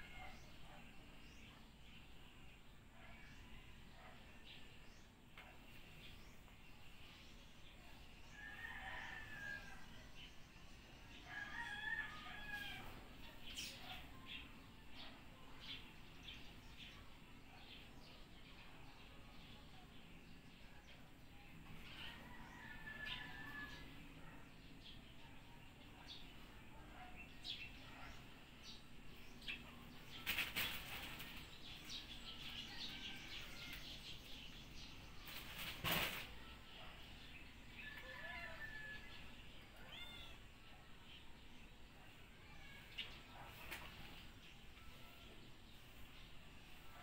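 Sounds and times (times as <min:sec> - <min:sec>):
rooster crowing faintly: 0:11.2 - 0:13.7, 0:21.8 - 0:24.6.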